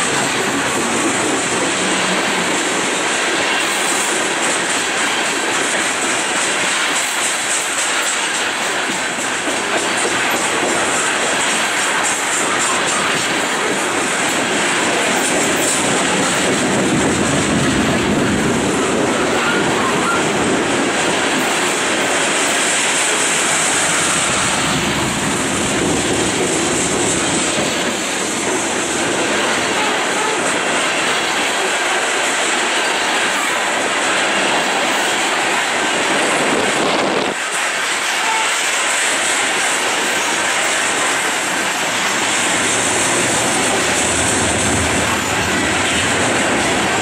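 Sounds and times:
train wheels rumbling on rails: 0:00.0 - 0:47.0.

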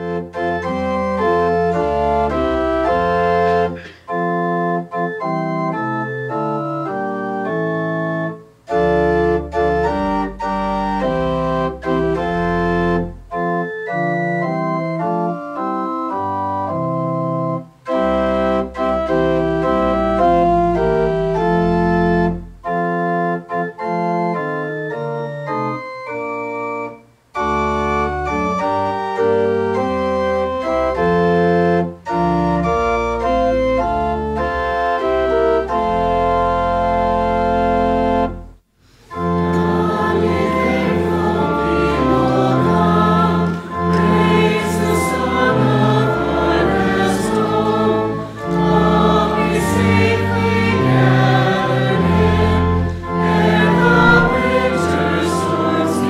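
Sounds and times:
church organ chords: 0:00.0 - 0:56.0.

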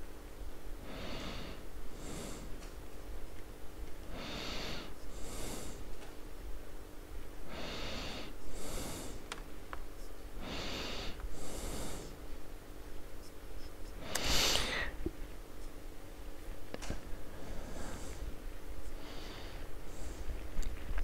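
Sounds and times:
man breathing hard: 0:00.8 - 0:02.6, 0:04.0 - 0:05.9, 0:07.5 - 0:09.3, 0:10.4 - 0:12.2, 0:17.2 - 0:20.5.

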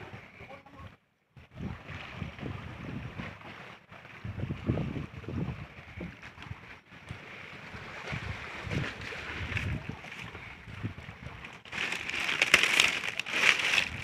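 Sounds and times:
wind buffeting microphone: 0:01.4 - 0:14.0
dry grass rustling: 0:11.3 - 0:14.0.

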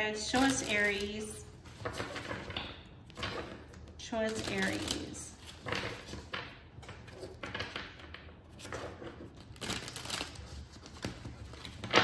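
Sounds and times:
cards being shuffled: 0:08.5 - 0:12.0.

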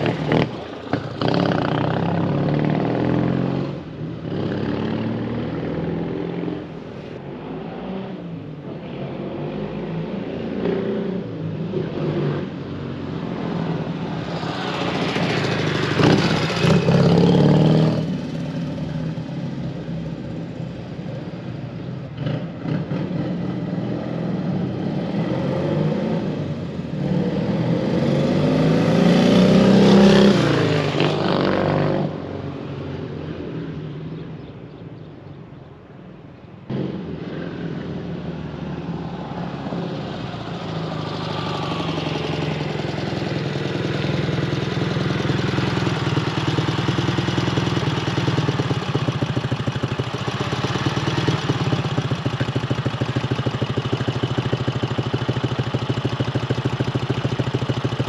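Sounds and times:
motorcycle engine running: 0:13.2 - 0:21.6, 0:39.9 - 0:58.0.

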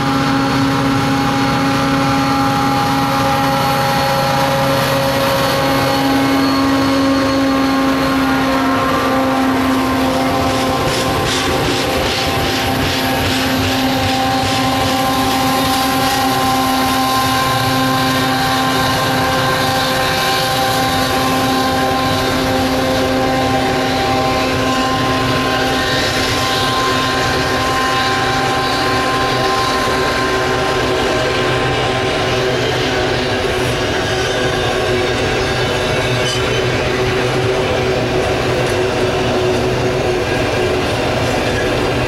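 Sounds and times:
locomotive engine drone: 0:00.0 - 0:42.0
train wheels rolling: 0:00.0 - 0:42.0
wheels clicking over rail joints: 0:09.7 - 0:23.3.

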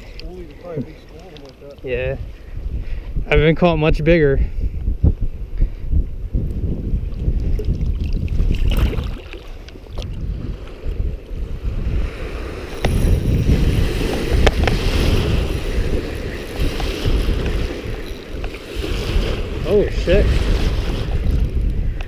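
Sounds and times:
wind buffeting microphone: 0:00.0 - 0:22.0
small waves lapping: 0:07.4 - 0:21.6.

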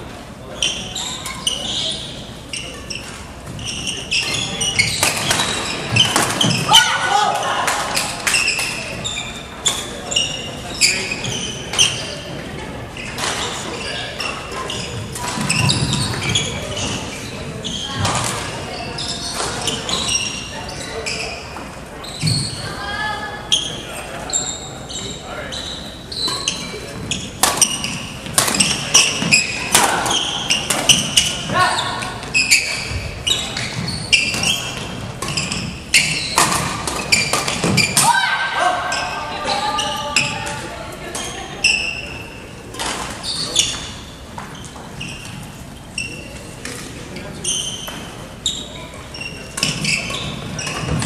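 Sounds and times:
voices echoing in hall: 0:00.0 - 0:51.0
shoes squeaking on court: 0:00.4 - 0:07.0, 0:07.9 - 0:38.1, 0:38.8 - 0:51.0
racket hitting shuttlecock: 0:27.4 - 0:31.4.

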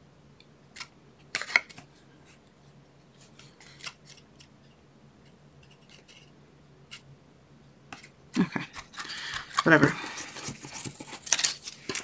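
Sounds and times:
cardstock rustling and clicking: 0:08.7 - 0:12.0.

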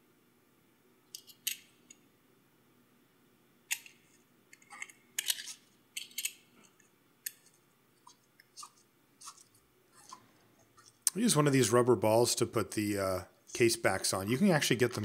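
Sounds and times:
small metallic clicks and scrapes: 0:01.1 - 0:02.0, 0:03.7 - 0:11.0.

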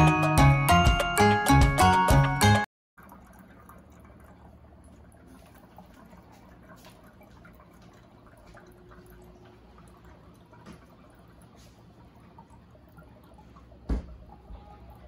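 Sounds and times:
water dripping and trickling: 0:03.0 - 0:15.0.

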